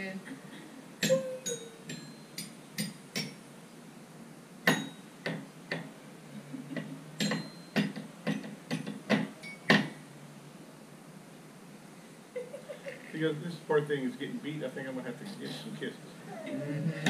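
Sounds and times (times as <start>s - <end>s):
toy xylophone strikes: 1.0s - 2.6s.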